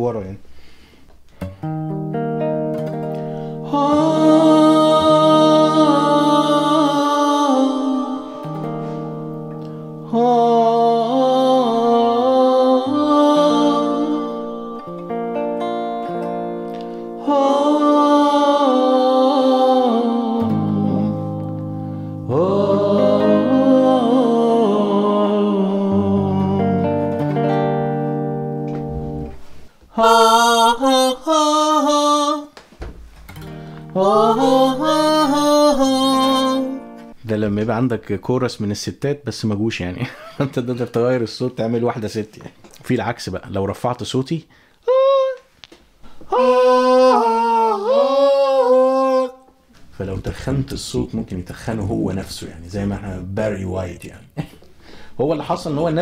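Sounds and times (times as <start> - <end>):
electric guitar harmonised chords: 1.4 - 29.4, 33.3 - 37.2
pitch-shifted man singing: 3.6 - 8.7, 10.0 - 14.9, 17.2 - 21.6, 22.2 - 27.7, 29.9 - 32.6, 33.9 - 37.0, 46.3 - 49.6.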